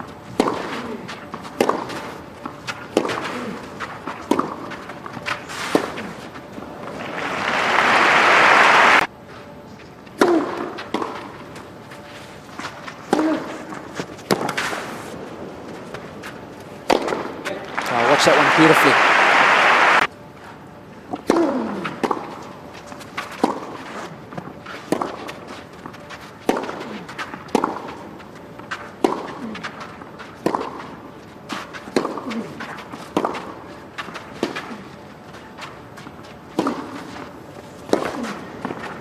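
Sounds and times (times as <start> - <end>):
racket striking tennis ball: 0.3 - 6.2, 10.2 - 11.4, 12.6 - 15.0, 16.8 - 17.6, 21.1 - 34.9, 36.4 - 39.0
tennis ball bouncing: 0.3 - 6.2, 10.0 - 11.6, 12.6 - 14.8, 16.8 - 17.7, 21.1 - 34.9, 35.6 - 39.0
crowd applause: 6.9 - 9.1, 17.6 - 20.1.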